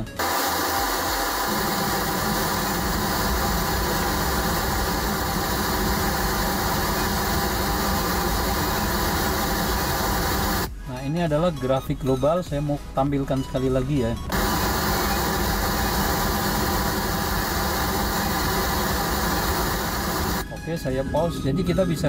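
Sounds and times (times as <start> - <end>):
pink noise through speakers: 0.0 - 10.7, 14.2 - 20.5.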